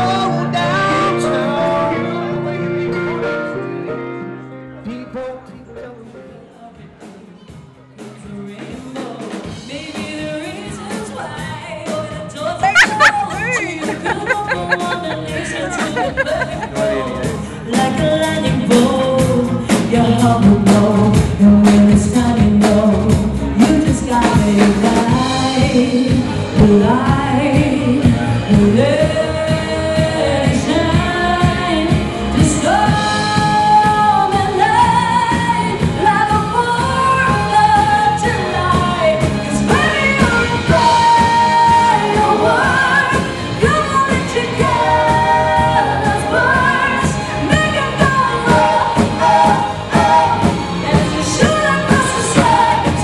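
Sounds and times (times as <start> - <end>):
live pop band playing: 0.0 - 53.0.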